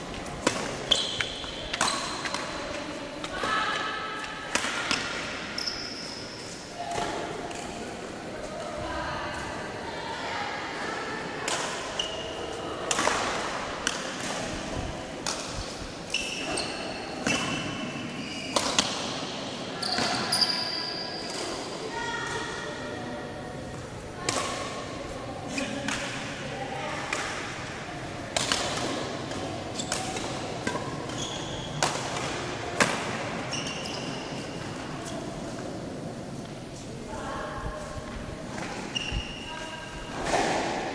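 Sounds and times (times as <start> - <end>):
sneakers squeaking on court: 0.5 - 2.8, 4.9 - 6.6, 16.1 - 18.9, 19.8 - 21.4, 29.3 - 35.3, 38.6 - 40.5
racket striking shuttlecock: 28.4 - 33.2.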